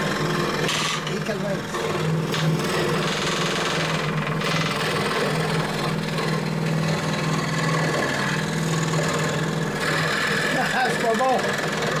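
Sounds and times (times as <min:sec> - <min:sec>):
scroll saw cutting wood: 0:00.0 - 0:12.0.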